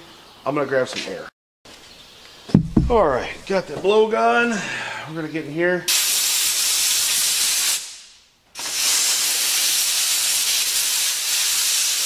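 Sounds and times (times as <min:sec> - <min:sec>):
air blow gun hissing: 0:06.0 - 0:12.0.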